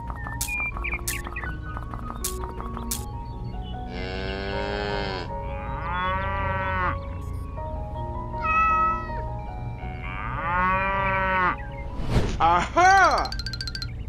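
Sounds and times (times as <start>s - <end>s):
light background music: 0.0s - 14.0s
cat meowing: 8.4s - 9.2s.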